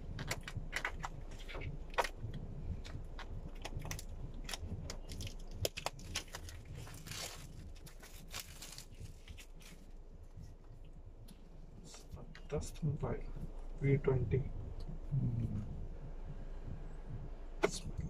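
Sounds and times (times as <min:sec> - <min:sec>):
plastic wrap crinkling: 0:02.8 - 0:10.0
car cabin rumble: 0:08.8 - 0:18.0.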